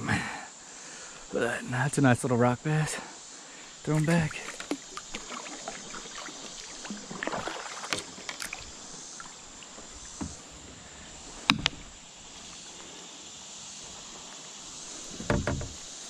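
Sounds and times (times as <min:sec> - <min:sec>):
hiss of moving water: 0:00.0 - 0:16.0
paddle knocking on hull: 0:10.1 - 0:10.7, 0:15.0 - 0:16.0.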